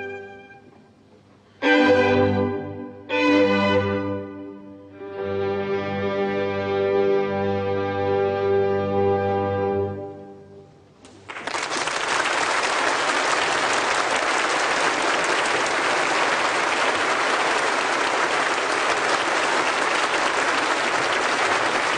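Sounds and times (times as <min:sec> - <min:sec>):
audience applauding: 0:11.1 - 0:21.9.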